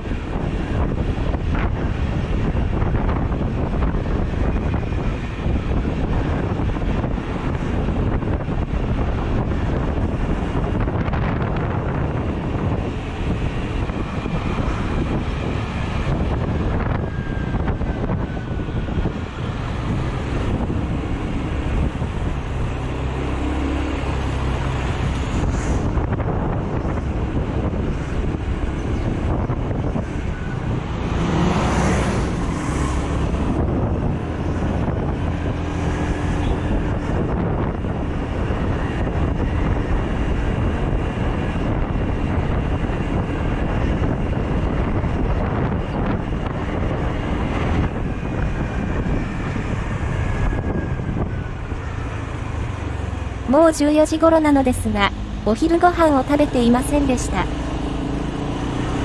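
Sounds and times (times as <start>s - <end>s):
bus passing: 0.0s - 59.0s
road noise: 0.0s - 59.0s
wind buffeting microphone: 0.0s - 59.0s
scooter engine: 56.2s - 59.0s.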